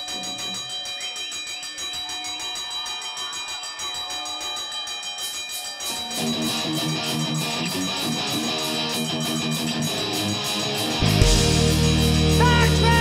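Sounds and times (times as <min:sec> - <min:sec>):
electric guitar: 0:06.2 - 0:13.0
live rock band playing: 0:11.0 - 0:13.0.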